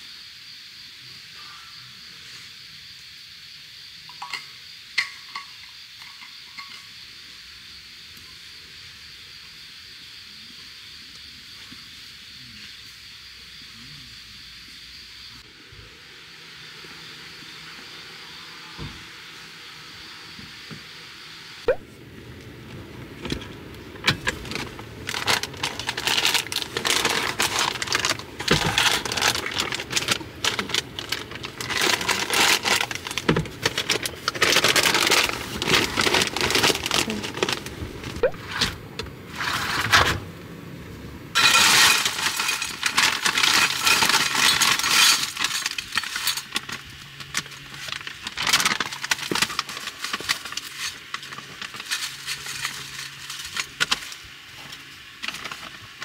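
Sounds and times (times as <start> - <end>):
packaging crinkling: 24.0 - 38.3, 41.4 - 56.0
handling clicks and clatter: 41.4 - 54.2.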